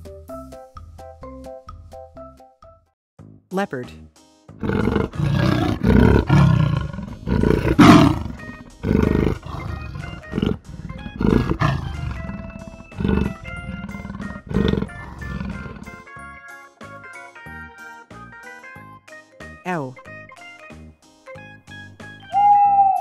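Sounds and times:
quiet background music: 3.5 - 16.1, 19.4 - 23.0
leopard roaring: 4.6 - 16.0.

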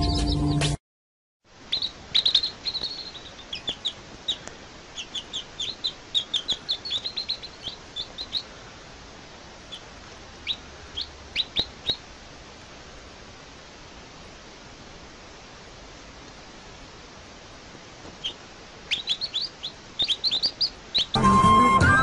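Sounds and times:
baby chicks peeping: 0.0 - 0.8, 1.6 - 8.8, 9.6 - 12.2, 18.0 - 22.0.

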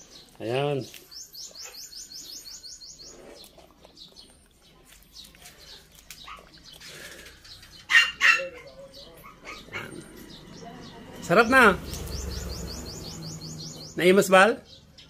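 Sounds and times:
bird trilling: 11.3 - 14.2.

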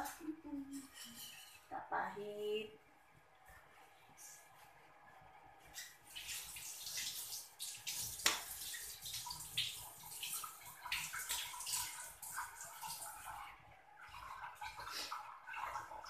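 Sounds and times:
water hissing and crackling in wok: 5.8 - 16.0.

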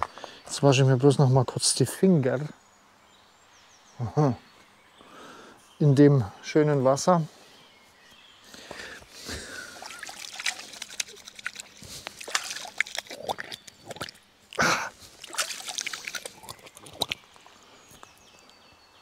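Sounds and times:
hands splashing in water: 9.4 - 14.2, 15.1 - 17.3.

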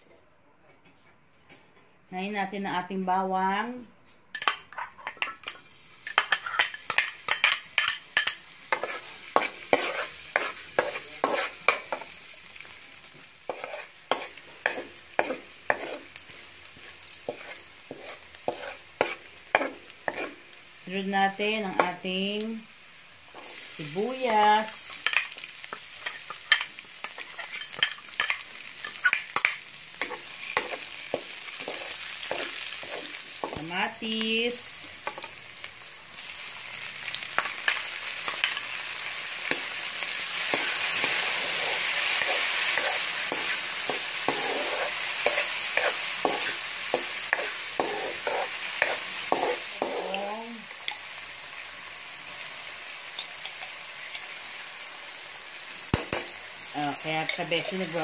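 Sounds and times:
vegetables sizzling in oil: 3.3 - 58.0
metal spatula scraping pan: 4.4 - 12.1, 13.5 - 16.2, 17.3 - 20.4, 26.0 - 33.6, 40.4 - 50.2.

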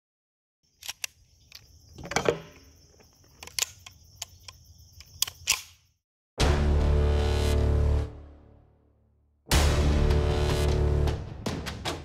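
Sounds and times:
loud music: 9.5 - 12.0.

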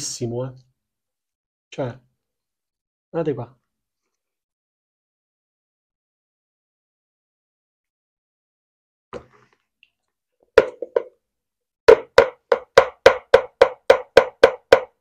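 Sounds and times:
spoon knocking plastic jug: 10.6 - 11.1, 11.9 - 15.0.

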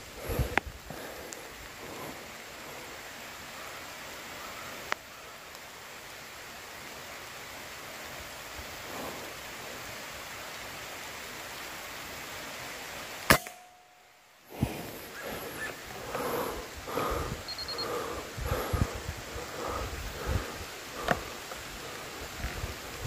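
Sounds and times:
background hiss: 0.0 - 23.0
air rifle firing: 13.3 - 13.7.

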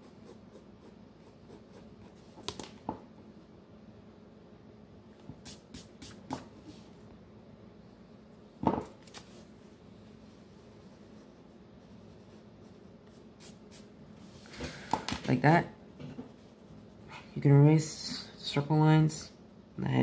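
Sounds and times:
pencil and eraser on sketchpad: 10.3 - 13.8.

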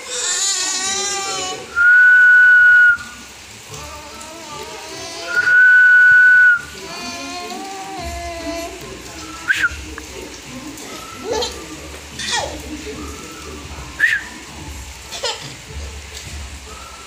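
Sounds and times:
whistling long notes: 1.7 - 3.2, 5.3 - 6.8, 9.1 - 9.9, 12.8 - 14.7, 16.6 - 17.0.

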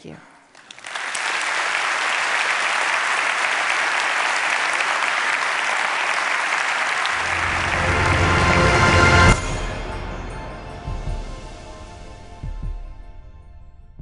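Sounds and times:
audience applauding: 0.5 - 9.7
music with deep bass: 7.2 - 14.0.

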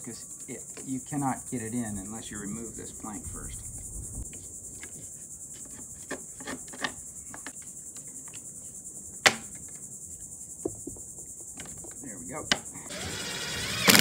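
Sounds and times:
insects chirring: 0.0 - 14.0
wooden planks knocking: 10.6 - 12.7.

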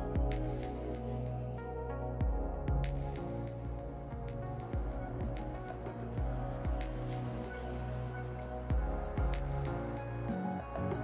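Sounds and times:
kick drum beats: 0.0 - 0.7, 2.2 - 5.6, 6.2 - 7.1, 8.7 - 9.6
sustained synth chords: 0.0 - 11.0.

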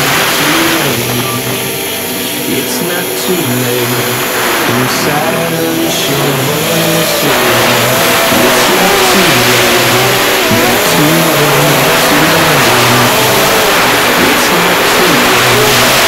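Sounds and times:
drone motors whining: 0.0 - 16.0
rush of air noise: 0.0 - 16.0.

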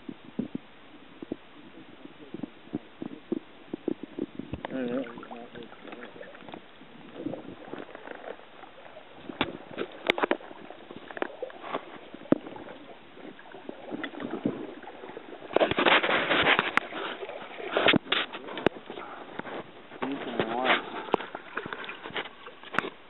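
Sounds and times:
water sloshing: 3.0 - 23.0
knocks and rubbing on boat: 9.2 - 23.0.

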